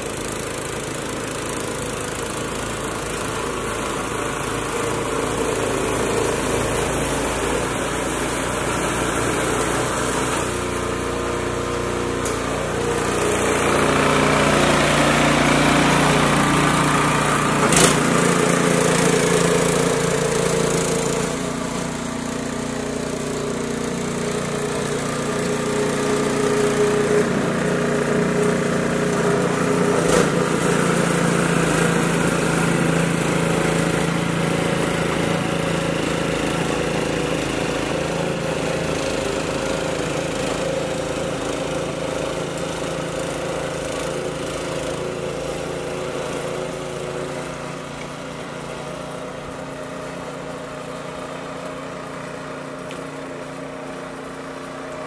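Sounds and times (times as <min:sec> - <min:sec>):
snow blower engine running: 0:00.0 - 0:55.0.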